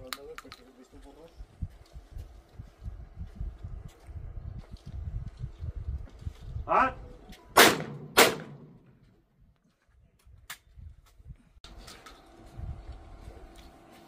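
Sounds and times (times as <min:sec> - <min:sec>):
person shouting: 0:06.7 - 0:07.1
shotgun shots: 0:07.6 - 0:08.9.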